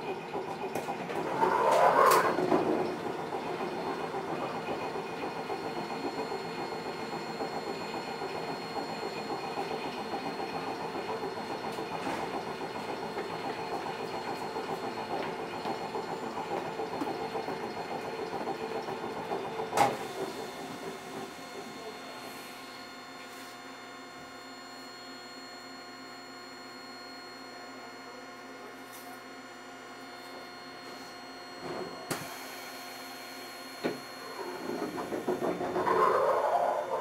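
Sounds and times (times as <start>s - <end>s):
train wheels rumbling on rails: 34.5s - 36.7s.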